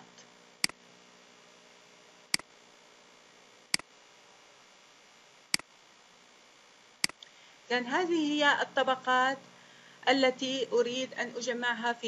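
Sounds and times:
faint steady hum: 0.0s - 12.0s
computer mouse clicks: 7.0s - 7.3s.

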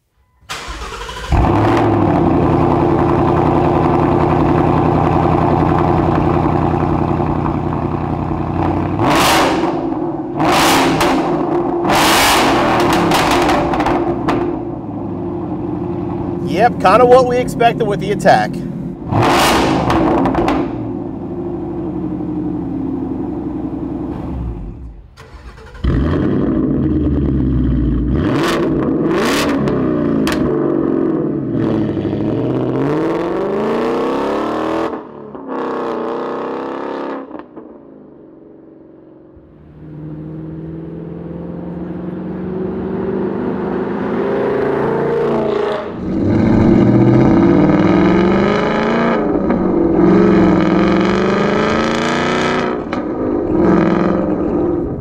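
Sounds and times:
exhaust cracks: 0.5s - 22.1s, 24.0s - 30.8s, 45.4s - 55.0s
car accelerating: 0.5s - 37.7s, 39.0s - 55.0s
raspy car engine revving: 0.6s - 22.0s, 24.0s - 37.1s, 39.4s - 55.0s.

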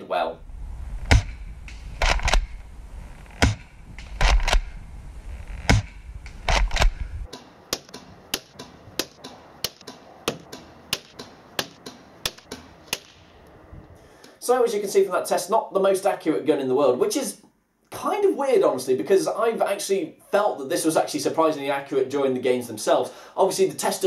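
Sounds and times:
wind rumble on microphone: 0.4s - 7.3s, 13.5s - 14.0s.

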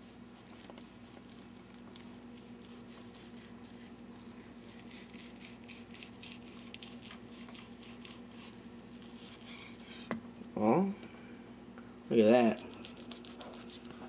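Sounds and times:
knife sawing through meat: 2.1s - 10.1s, 12.3s - 13.9s.

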